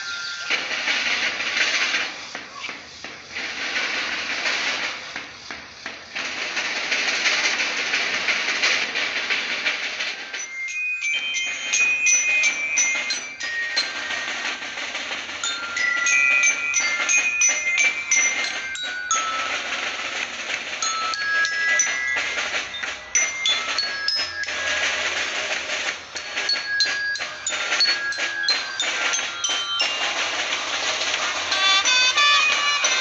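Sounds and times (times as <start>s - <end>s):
bell lyres playing melody: 0.0s - 1.9s, 9.9s - 33.0s.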